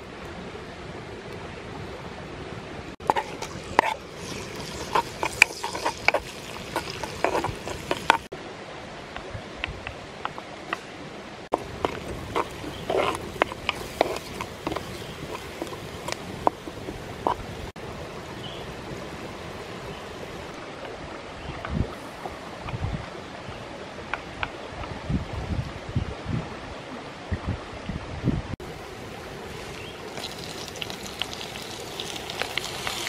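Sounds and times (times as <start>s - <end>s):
stream rushing: 0.0s - 33.0s
chilies and garlic sizzling in oil: 3.0s - 8.3s, 11.5s - 20.5s, 28.8s - 33.0s.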